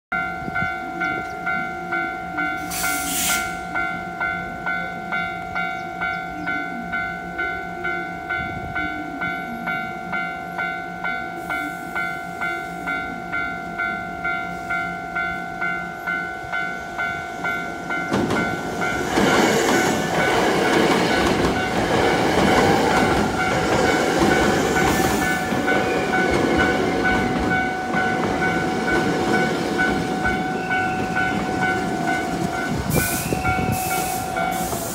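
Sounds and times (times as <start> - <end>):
level-crossing bell dinging: 0.1 - 34.9
train wheels rolling: 16.5 - 34.9.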